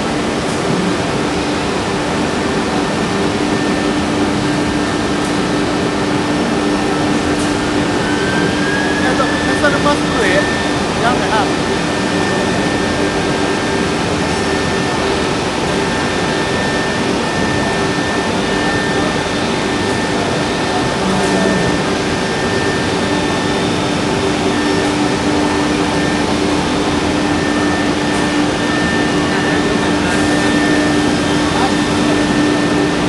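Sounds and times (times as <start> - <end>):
loud machine noise: 0.0 - 33.0
router spindle high whine: 0.0 - 33.0.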